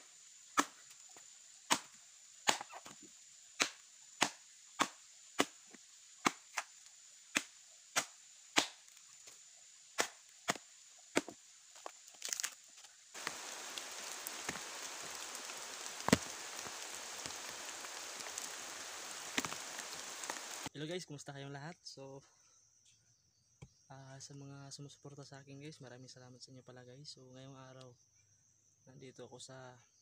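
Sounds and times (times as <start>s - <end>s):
background hiss: 0.0s - 21.3s
blade chopping into a log: 0.6s - 0.8s, 1.7s - 3.0s, 3.6s - 5.6s, 6.2s - 6.7s, 7.3s - 8.9s, 10.0s - 11.4s.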